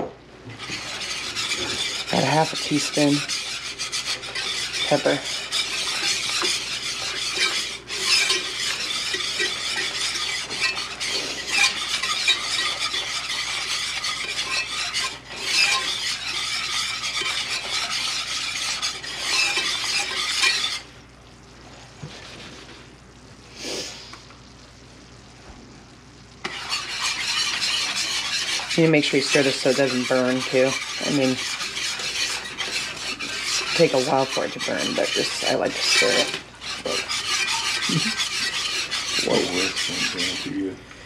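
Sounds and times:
whisk scraping a skillet: 0.0s - 21.0s, 21.8s - 23.0s, 26.4s - 40.7s
faint sizzle: 20.7s - 26.8s.

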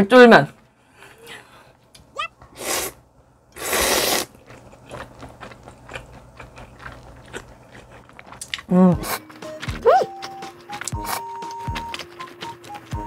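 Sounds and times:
noodle slurping: 2.6s - 3.0s, 3.6s - 13.0s
wet chewing: 3.6s - 13.0s.

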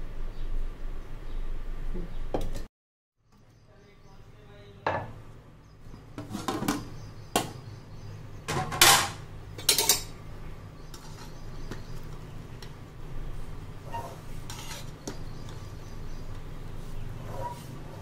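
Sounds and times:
metal pot lid clanking: 8.5s - 10.1s.

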